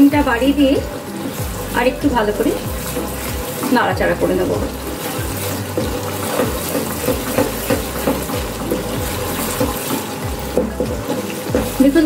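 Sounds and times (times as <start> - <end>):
masala sizzling in hot oil: 0.0 - 12.0
wooden spatula scraping pan: 1.0 - 12.0.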